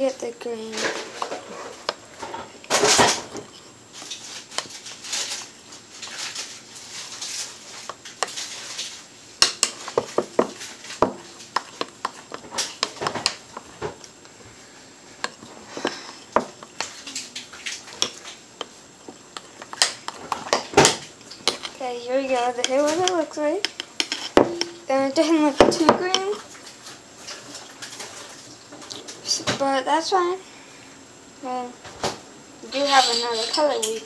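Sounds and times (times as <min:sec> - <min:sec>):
utensil stirring batter in glass bowl: 0:03.4 - 0:14.0, 0:15.2 - 0:26.8.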